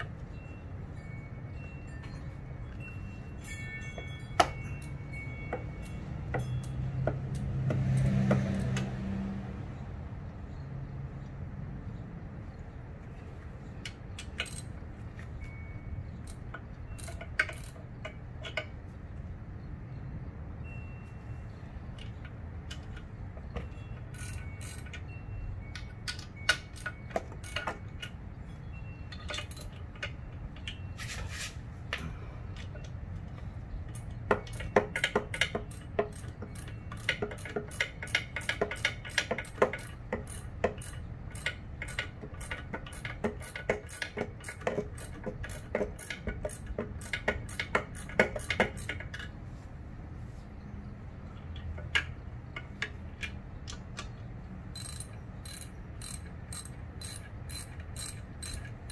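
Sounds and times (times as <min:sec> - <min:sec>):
hand tools clicking on metal: 0:13.8 - 0:18.9, 0:21.9 - 0:28.4, 0:29.1 - 0:31.2, 0:31.9 - 0:49.4, 0:51.3 - 0:58.9.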